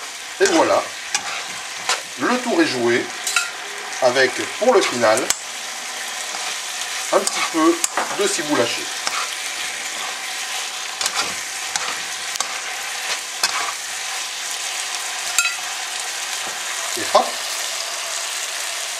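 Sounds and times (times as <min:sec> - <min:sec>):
chicken sizzling in a wok: 0:00.0 - 0:18.9
utensil scraping and knocking pan: 0:11.0 - 0:13.8.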